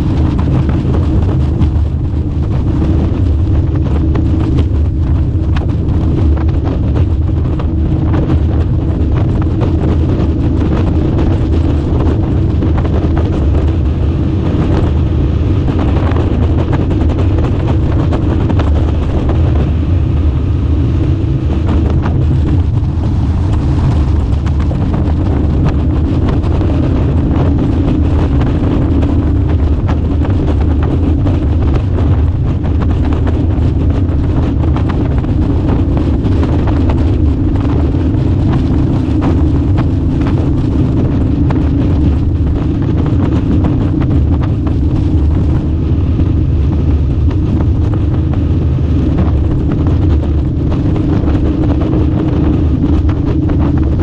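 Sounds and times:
boat motor running: 0.0 - 54.0
wind buffeting microphone: 0.0 - 54.0.

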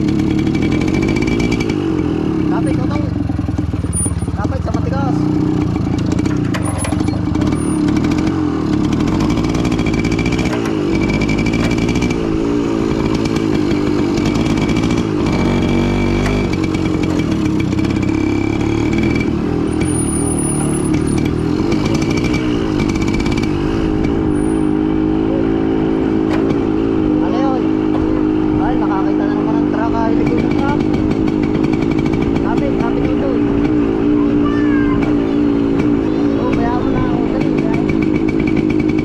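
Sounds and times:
motorcycle engine running: 0.0 - 39.0.

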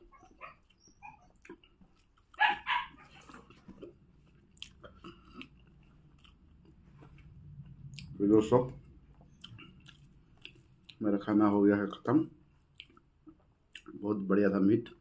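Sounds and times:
faint chewing: 0.0 - 11.3, 11.9 - 15.0
wet eating sounds: 0.6 - 8.2, 9.1 - 11.0, 12.6 - 14.0
dog barking: 2.4 - 3.4.

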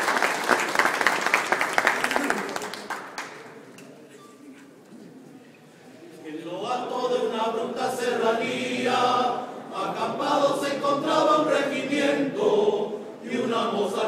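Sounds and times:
choir singing: 6.4 - 14.0.

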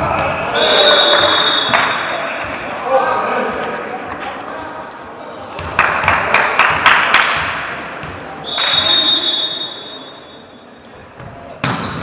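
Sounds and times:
referee's whistle blast: 0.5 - 2.2, 8.4 - 10.6
sharp claps: 1.1 - 2.0, 5.7 - 7.5.

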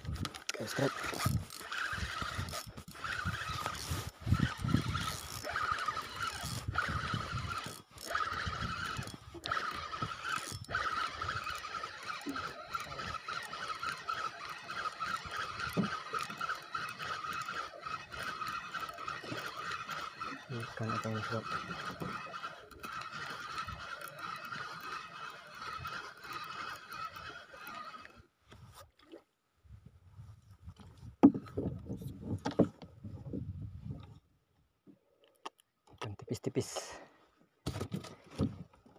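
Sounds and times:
fishing reel cranking whine: 0.0 - 28.3
wind buffeting microphone: 1.2 - 7.7, 29.8 - 34.2.

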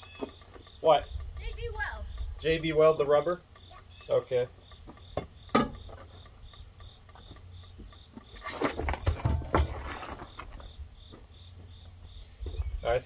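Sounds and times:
crickets chirping: 0.0 - 13.0
sharp knock: 5.2 - 5.8.

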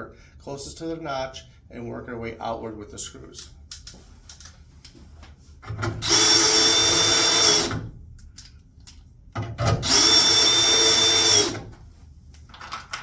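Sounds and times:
cordless drill whining: 6.0 - 7.8, 9.8 - 11.6.

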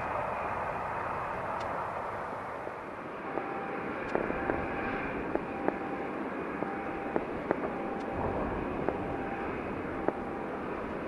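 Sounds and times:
aircraft engine noise: 0.0 - 11.0
short mid-pitched beeps: 3.3 - 10.5.

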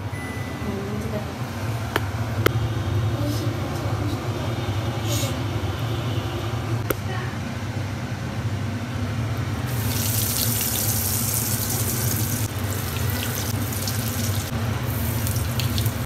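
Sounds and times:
food frying in hot oil: 9.6 - 16.0.

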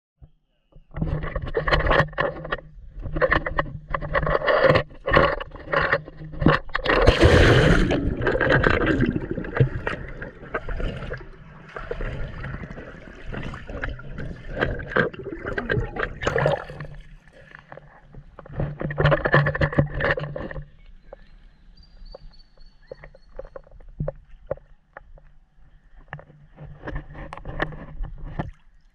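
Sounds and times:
muffled underwater sound: 0.2 - 28.8
pool water splashing: 6.8 - 17.5.

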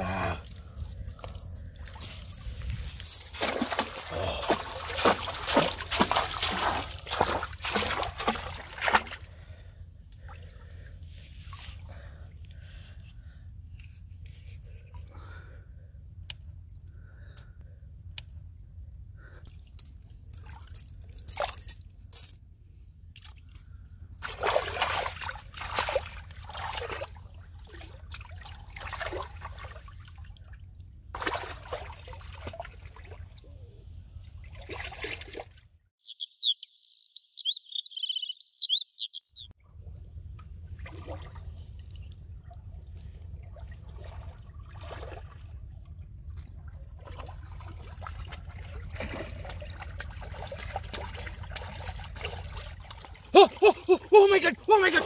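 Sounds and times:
chain links clinking: 0.0 - 3.4, 19.5 - 22.4, 41.6 - 44.5
water splashing and sloshing: 0.0 - 13.0, 23.1 - 35.9, 39.7 - 55.0
high chirping calls: 36.0 - 39.5.

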